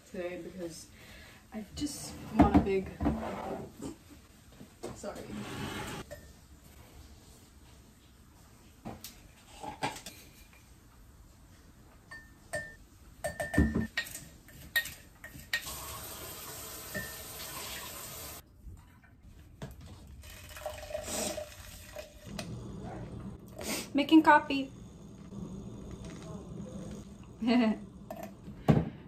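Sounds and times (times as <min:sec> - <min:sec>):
metal spoon clinking on glass: 0:12.1 - 0:15.4
kitchen tap running: 0:15.6 - 0:18.4, 0:20.2 - 0:23.3.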